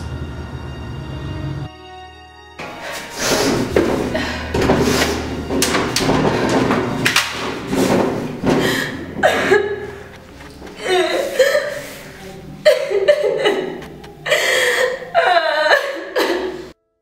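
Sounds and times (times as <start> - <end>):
knocks and thuds: 3.3 - 10.8
dense noisy sound bed: 3.3 - 16.8
woman crying: 8.6 - 16.8.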